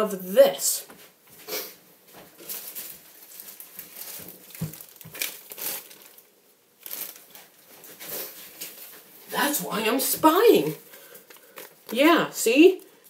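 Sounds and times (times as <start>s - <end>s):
plastic bag crinkling: 2.3s - 9.3s, 10.4s - 12.2s.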